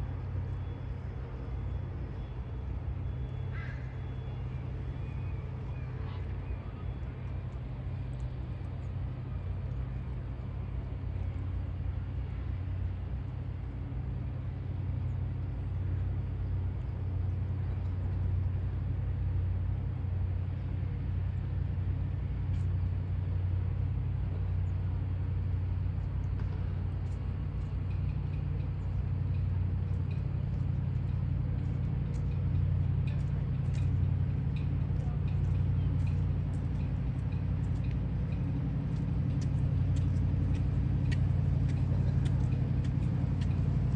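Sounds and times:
low engine drone: 0:00.0 - 0:43.9
faint ticks: 0:07.2 - 0:09.0, 0:22.5 - 0:23.0, 0:26.0 - 0:43.9.

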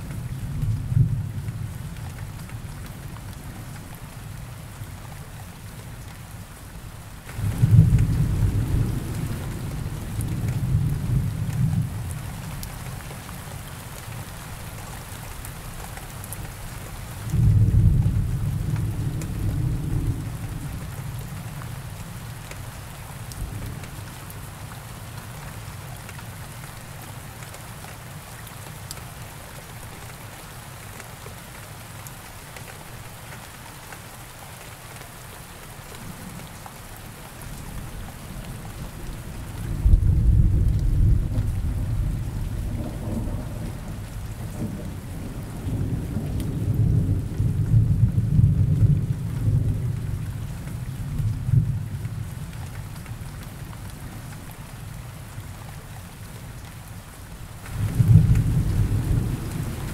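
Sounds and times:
steady rain: 0:00.0 - 0:59.9
rolling thunder: 0:07.3 - 0:12.0, 0:39.0 - 0:50.2, 0:57.7 - 0:59.9.

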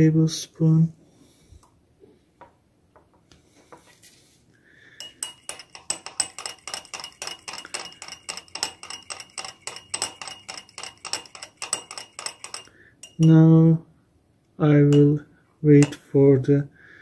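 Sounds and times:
spoon clinking against glass: 0:05.0 - 0:13.5, 0:14.9 - 0:15.2, 0:15.8 - 0:16.1.

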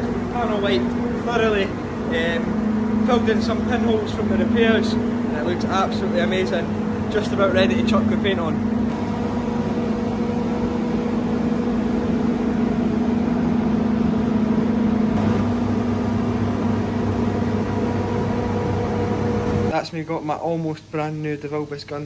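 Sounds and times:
machine motor humming: 0:00.0 - 0:19.8.

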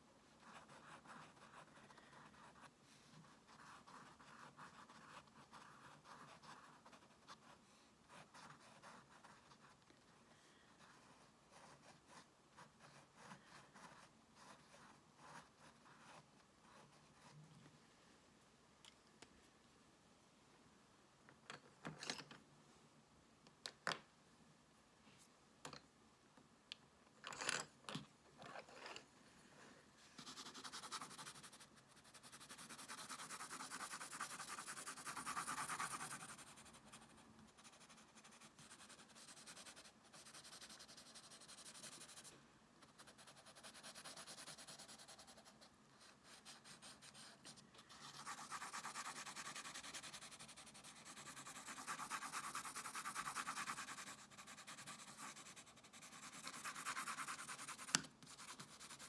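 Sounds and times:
pencil shading on paper: 0:00.4 - 0:09.8, 0:30.2 - 0:42.3, 0:42.9 - 0:59.0.

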